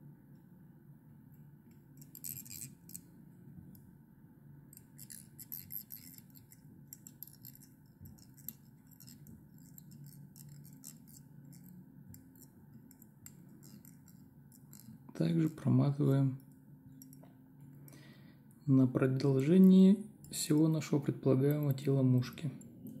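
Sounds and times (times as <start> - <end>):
low steady hum: 0.0 - 23.0
thread clicks and rasps: 2.0 - 3.1, 4.8 - 15.7.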